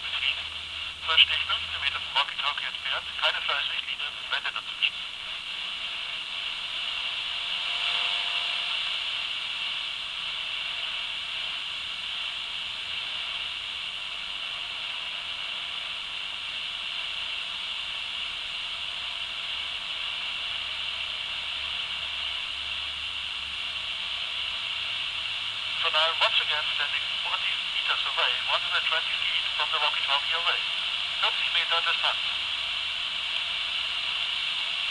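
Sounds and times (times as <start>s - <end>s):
walkie-talkie hissing: 0.0s - 7.1s, 25.7s - 34.9s.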